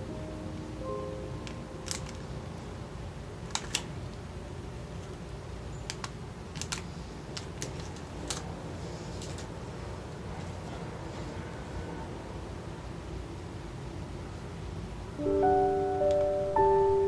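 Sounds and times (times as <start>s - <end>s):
cellophane packages crinkling: 1.8s - 2.3s, 3.5s - 3.9s, 5.8s - 8.5s, 9.1s - 9.5s.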